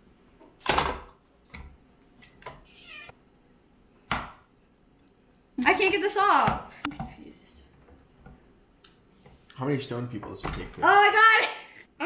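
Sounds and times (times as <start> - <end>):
kitten meowing: 2.6 - 3.2.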